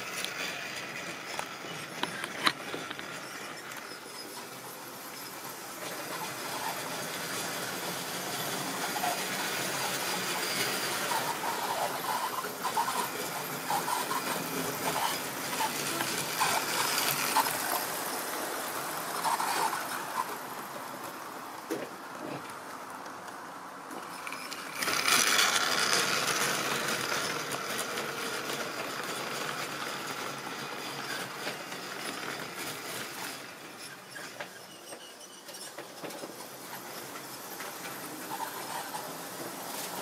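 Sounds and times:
model train whirring rattle: 0:00.0 - 0:40.0.

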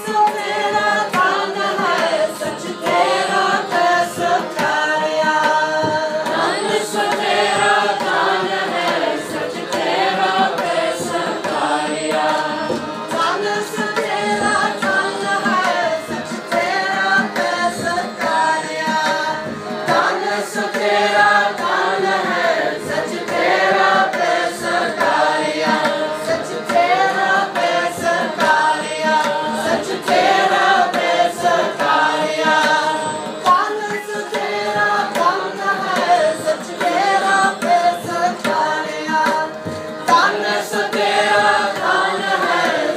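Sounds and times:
group singing in unison: 0:00.0 - 0:42.9
harmonium: 0:00.0 - 0:42.9.

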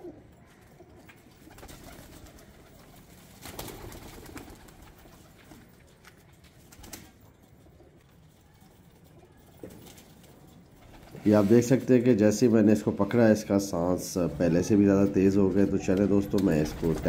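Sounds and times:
wings flapping: 0:01.1 - 0:07.3, 0:15.9 - 0:17.0.

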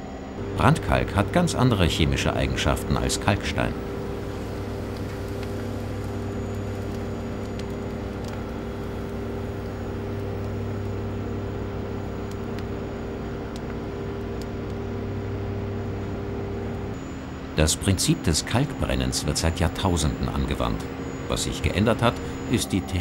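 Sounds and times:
low mechanical hum: 0:00.0 - 0:23.0
soft hiss: 0:00.6 - 0:17.0
faint clicks: 0:03.9 - 0:12.8.

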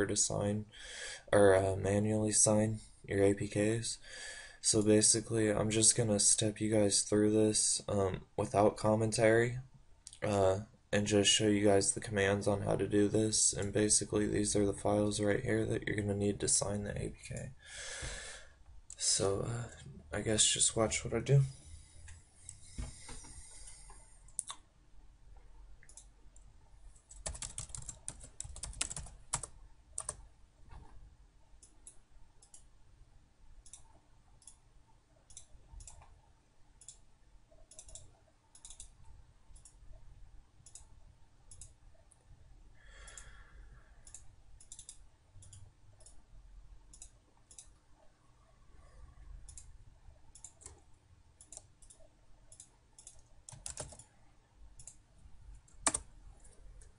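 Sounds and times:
computer keyboard typing: 0:27.0 - 0:30.2, 0:51.4 - 0:54.1, 0:55.6 - 0:56.1.

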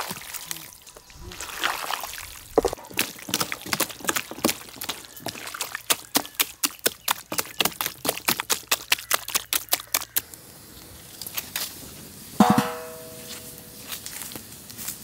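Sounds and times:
hands squelching wet meat: 0:00.0 - 0:10.3.

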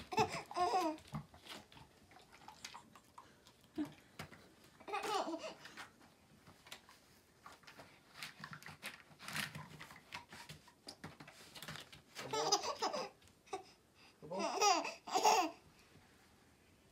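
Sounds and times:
baby babbling: 0:00.1 - 0:01.0, 0:12.3 - 0:15.6.

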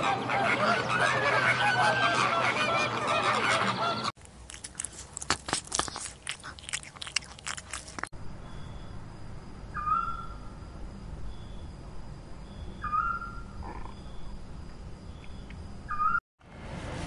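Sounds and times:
flamingos honking and chattering: 0:00.0 - 0:04.1
kittens crunching dry food: 0:04.2 - 0:08.1.

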